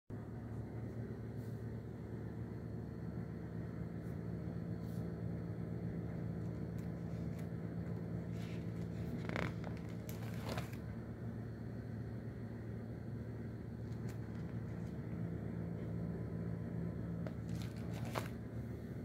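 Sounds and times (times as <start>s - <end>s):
steady low hum: 0.1s - 19.0s
stiff rustle of pages: 6.4s - 10.9s, 13.8s - 15.1s, 17.2s - 18.5s.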